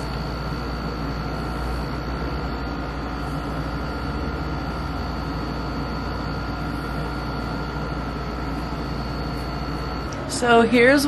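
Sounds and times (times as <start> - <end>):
faint high whines: 0.0 - 11.0
low hum: 0.0 - 11.0.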